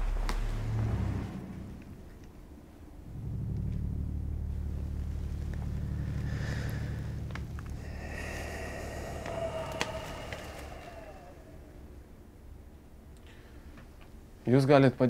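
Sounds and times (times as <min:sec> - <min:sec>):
low rumbling drone: 0:00.0 - 0:13.7
faint higher tones: 0:01.4 - 0:12.9.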